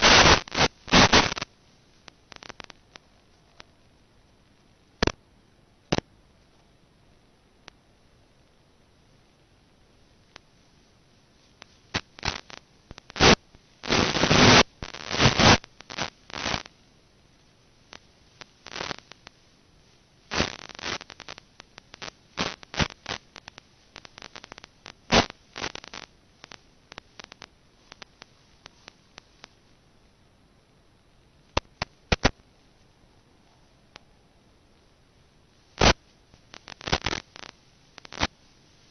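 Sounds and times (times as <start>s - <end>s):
bursts of hiss: 0.0s - 1.5s, 11.5s - 16.7s, 35.6s - 38.9s
radio static crackles: 0.0s - 38.9s.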